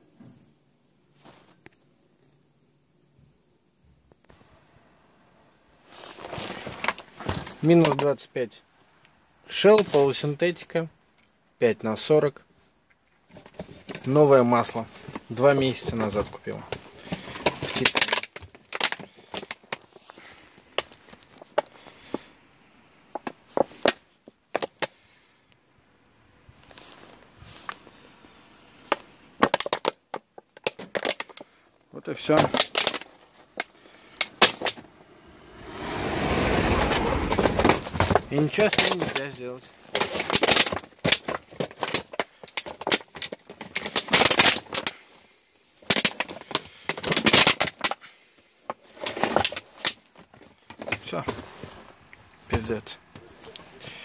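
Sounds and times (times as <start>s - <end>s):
plastic bottle crackling: 14.9s - 21.8s, 28.8s - 31.6s, 32.2s - 35.1s, 36.9s - 45.0s, 45.8s - 48.0s.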